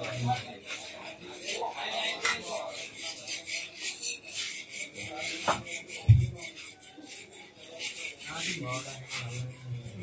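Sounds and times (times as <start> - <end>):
rubbing and scraping: 0.0 - 10.0.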